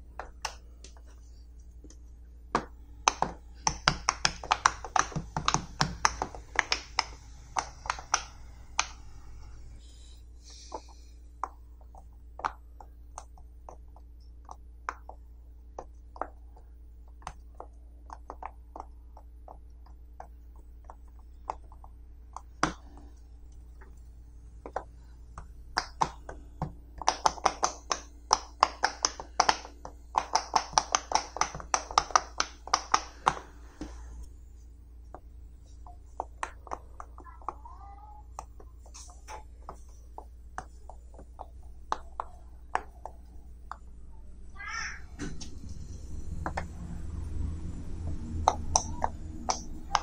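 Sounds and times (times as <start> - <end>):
fidget toy bubbles popping: 10.7 - 23.2, 35.8 - 43.9.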